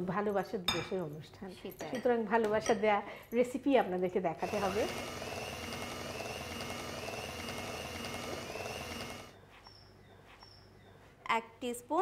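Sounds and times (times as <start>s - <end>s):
electric hand mixer whining: 4.4s - 9.4s.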